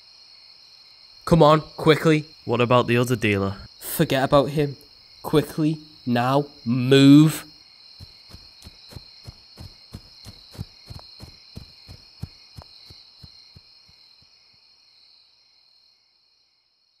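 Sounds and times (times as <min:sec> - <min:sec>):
crickets chirring: 0:00.0 - 0:17.0
running footsteps: 0:07.9 - 0:14.6.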